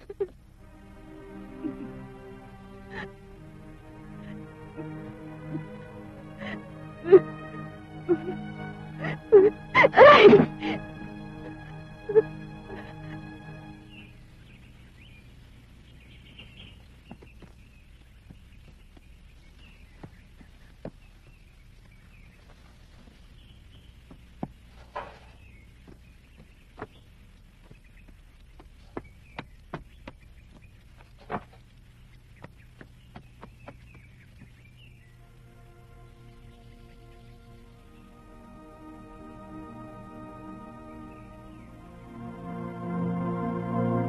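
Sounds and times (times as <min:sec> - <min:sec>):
low steady hum: 0:00.0 - 0:44.0
faint bird chirps: 0:12.1 - 0:38.6.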